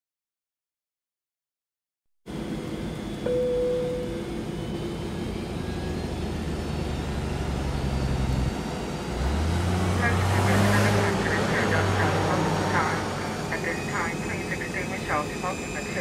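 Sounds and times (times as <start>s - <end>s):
jet engines droning: 2.3s - 16.0s
short higher tone: 3.2s - 5.0s.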